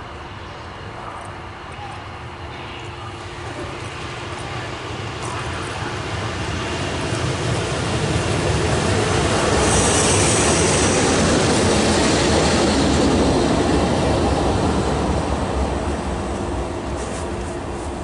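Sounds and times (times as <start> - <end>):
locomotive wheels rumbling on rail: 0.1 - 18.0
high hissing squeal: 9.4 - 11.2.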